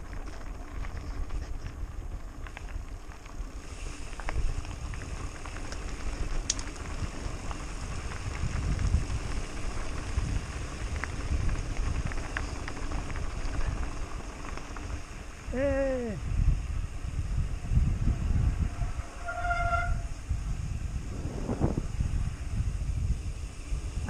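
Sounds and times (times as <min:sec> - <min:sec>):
tyres clicking and rattling on stones: 0:00.0 - 0:15.4
wind buffeting microphone: 0:00.0 - 0:24.0.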